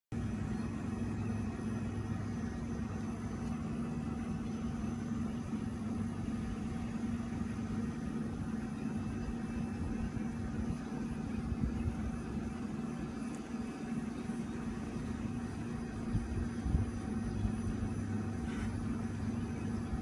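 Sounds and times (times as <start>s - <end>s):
low mechanical hum: 0.1s - 20.0s.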